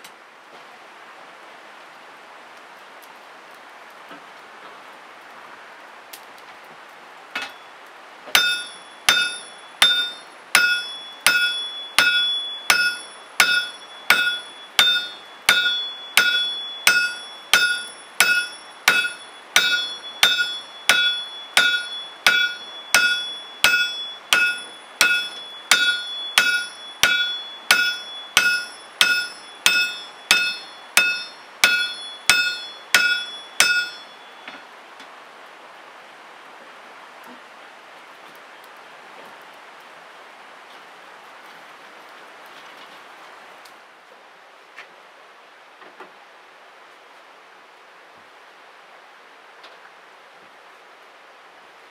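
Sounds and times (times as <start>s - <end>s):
hammer striking metal: 7.4s - 7.6s, 8.3s - 34.6s.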